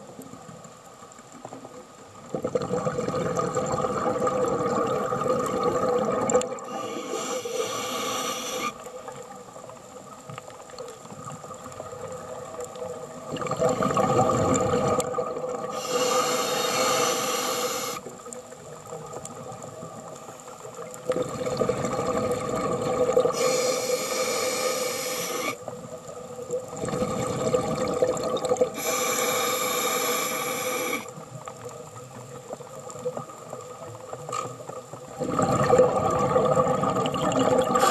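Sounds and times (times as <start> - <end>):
bubbling exhalations underwater: 2.3 - 6.6, 13.3 - 15.8, 21.1 - 23.5, 26.7 - 28.9, 35.1 - 37.9
regulator inhalation rushes: 6.6 - 8.8, 15.7 - 18.1, 23.3 - 25.6, 28.8 - 31.1.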